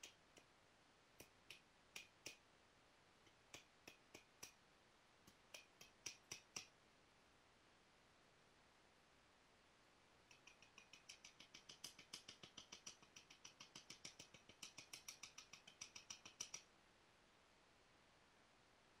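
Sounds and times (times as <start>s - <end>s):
knapping tool clicking on stone: 1.2s - 2.4s, 3.3s - 4.6s, 5.3s - 6.7s, 10.3s - 16.7s.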